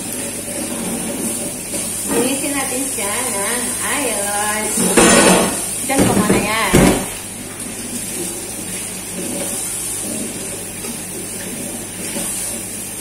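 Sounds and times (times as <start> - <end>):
tap running into metal sink: 4.7 - 7.2.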